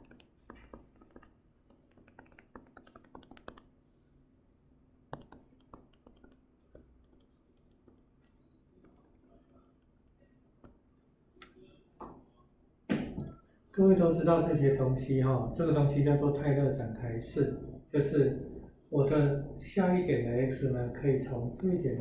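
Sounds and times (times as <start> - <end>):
stylus tapping on pen tablet: 0.0 - 3.6, 5.1 - 8.0.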